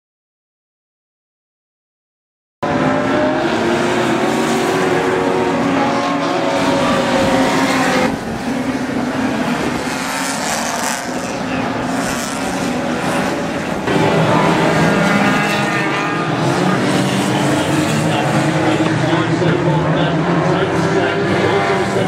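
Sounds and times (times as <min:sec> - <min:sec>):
racing car engines revving: 0:02.6 - 0:22.0.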